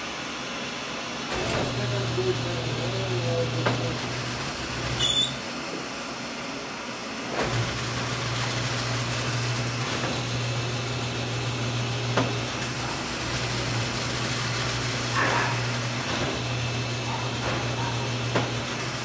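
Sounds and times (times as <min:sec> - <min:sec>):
printing press motor humming: 0:00.0 - 0:19.0
press clatter: 0:12.0 - 0:19.0.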